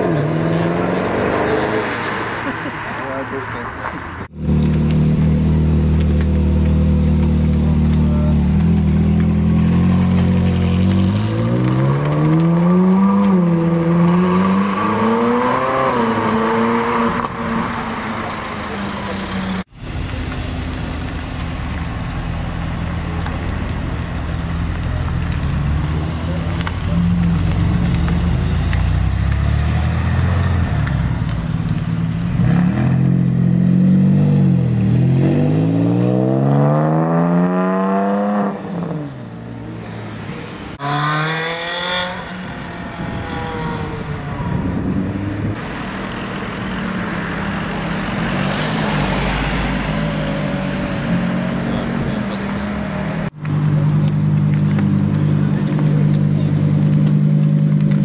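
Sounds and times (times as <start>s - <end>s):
sports car engine revving: 32.2s - 40.1s, 40.8s - 44.1s.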